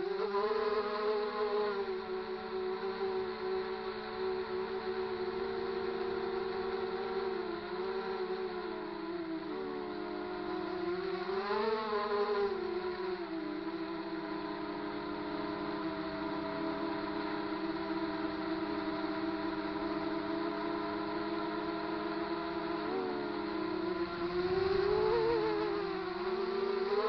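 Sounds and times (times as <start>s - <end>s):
drone motors whining: 0.0s - 27.0s.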